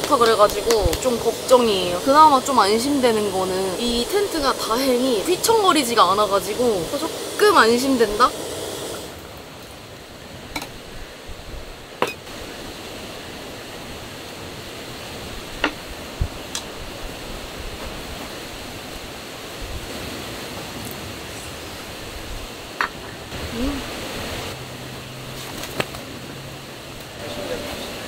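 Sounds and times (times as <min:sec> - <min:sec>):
strong wind against a tent: 0:00.0 - 0:28.0.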